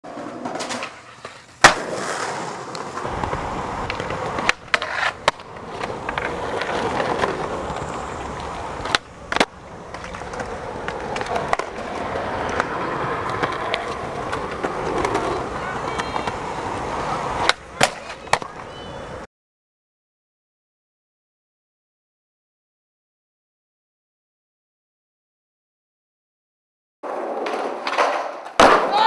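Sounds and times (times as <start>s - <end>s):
skateboard clacking on ground: 0.0s - 19.3s, 27.0s - 29.0s
skateboard wheels rolling on concrete: 0.0s - 19.3s, 27.0s - 29.0s.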